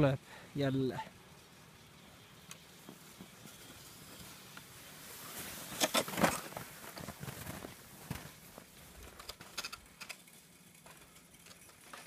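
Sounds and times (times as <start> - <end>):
snow crunching under sled: 1.4 - 9.6.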